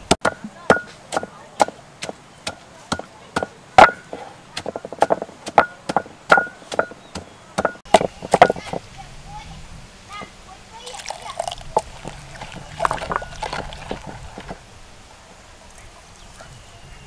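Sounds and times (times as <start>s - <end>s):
mortar ringing: 0.0s - 8.8s, 11.6s - 14.6s
pestle pounding in a mortar: 0.0s - 8.8s, 11.4s - 14.6s.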